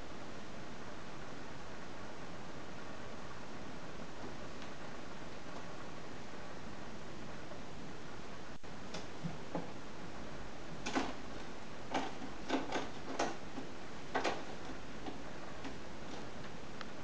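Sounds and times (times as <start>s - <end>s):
background hiss: 0.0s - 17.0s
cat claws tapping on cat tree: 10.8s - 16.3s.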